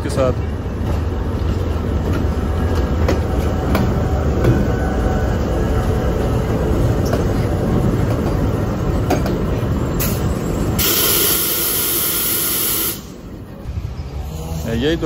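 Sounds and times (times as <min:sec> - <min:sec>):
train rumbling on rails: 0:00.0 - 0:15.0
air hiss: 0:10.8 - 0:13.2.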